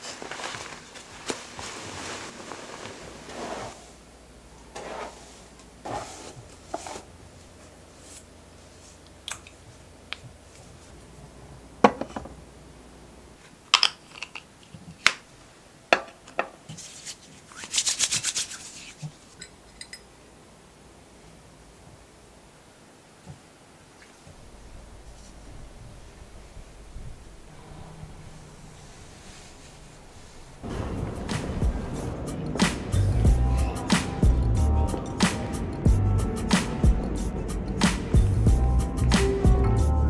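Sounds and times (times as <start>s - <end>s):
rustling: 0.0s - 11.2s, 16.6s - 20.0s, 23.3s - 34.3s
small objects clicking and knocking: 13.7s - 15.2s.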